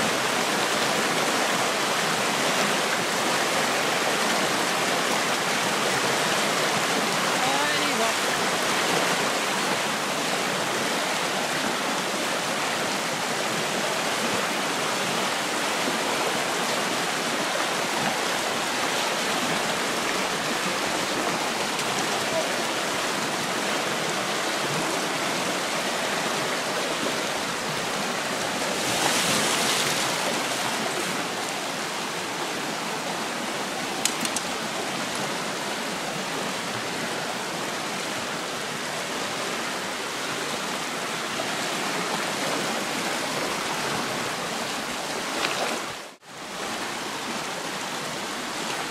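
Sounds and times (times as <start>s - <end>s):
stream rushing over rocks: 0.0s - 48.9s.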